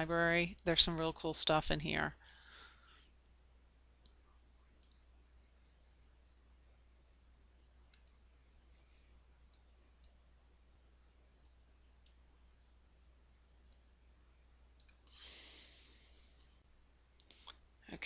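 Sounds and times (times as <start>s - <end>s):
low steady hum: 0.0s - 18.0s
computer mouse clicks: 4.8s - 5.1s, 7.9s - 8.3s, 9.5s - 10.2s, 11.4s - 12.2s, 14.8s - 15.1s.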